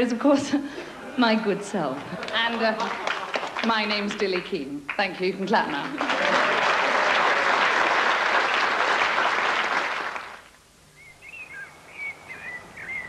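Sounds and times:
audience applauding: 0:02.0 - 0:10.6
faint bird chirping: 0:10.9 - 0:13.0.

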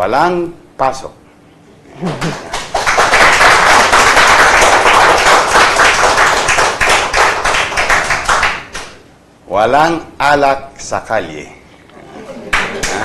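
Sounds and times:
people applauding: 0:02.0 - 0:08.9, 0:12.5 - 0:13.0.

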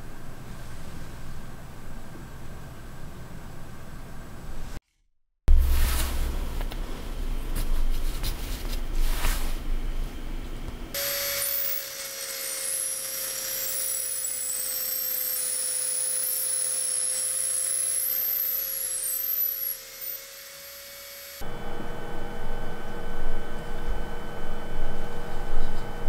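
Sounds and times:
drill bit squeaking in wood: 0:11.0 - 0:21.4
drill motor whine: 0:11.0 - 0:23.4.

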